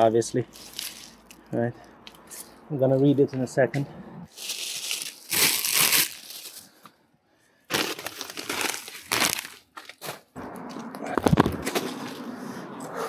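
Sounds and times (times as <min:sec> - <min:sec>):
bag and rubbish crinkling: 0:00.4 - 0:01.4, 0:04.3 - 0:06.8, 0:07.7 - 0:12.2.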